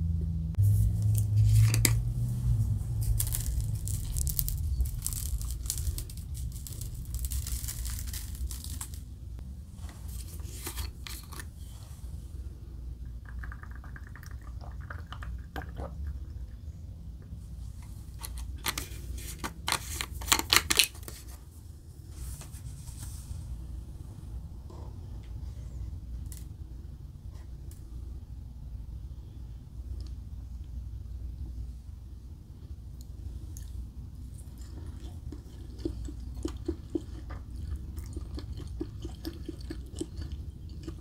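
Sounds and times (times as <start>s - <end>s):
steady low hum: 0.0s - 41.0s
seasoning bottle rattling: 2.9s - 9.1s.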